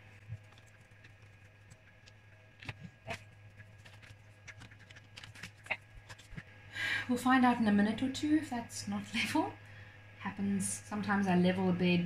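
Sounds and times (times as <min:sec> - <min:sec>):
paper rustling and ticking: 0:00.0 - 0:06.5
steady low hum: 0:00.0 - 0:12.0.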